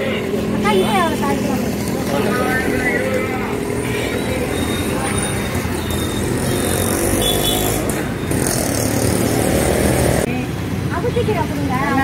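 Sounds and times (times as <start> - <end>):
indistinct voices: 0.0 - 6.7
steady traffic noise: 0.0 - 12.0.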